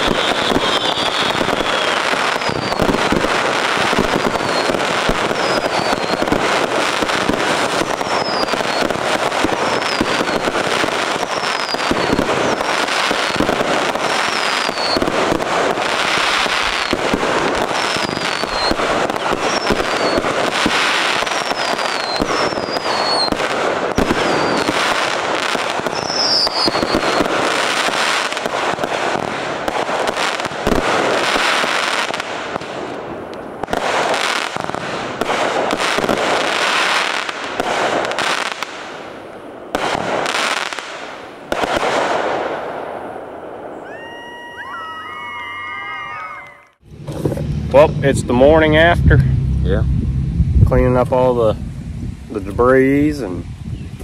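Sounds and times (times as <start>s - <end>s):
firework falling whistles: 0.0s - 3.3s, 3.9s - 25.1s, 25.8s - 29.8s, 43.7s - 47.9s
firework bursts and bangs: 0.0s - 44.4s.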